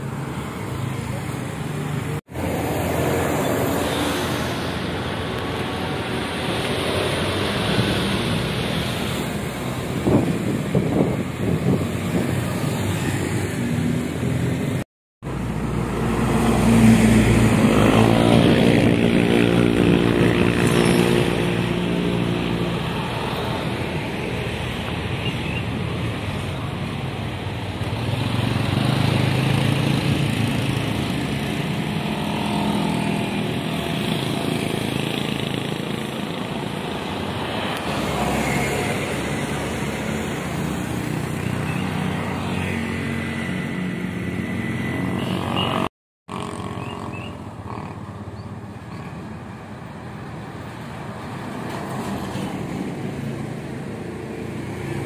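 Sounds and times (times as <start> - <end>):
motorcycles and cars passing: 0.0 - 55.0
loud engine passing: 15.3 - 24.6.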